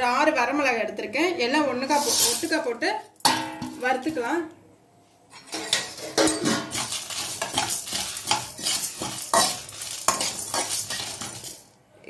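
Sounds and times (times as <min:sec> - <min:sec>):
metal spatula scraping pan: 0:01.9 - 0:02.6, 0:05.3 - 0:11.7
seeds rattling against pan: 0:06.7 - 0:11.7.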